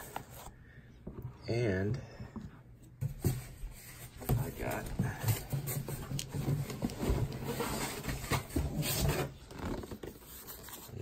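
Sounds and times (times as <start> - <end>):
rubbing and rustling of objects: 0.0 - 0.6, 2.9 - 11.0.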